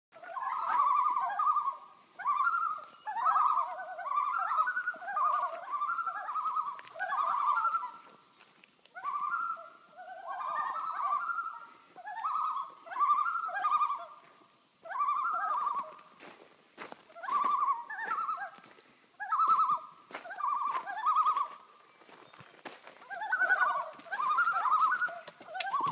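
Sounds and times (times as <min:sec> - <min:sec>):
loons tremolo calls: 0:00.2 - 0:08.3, 0:08.9 - 0:25.9.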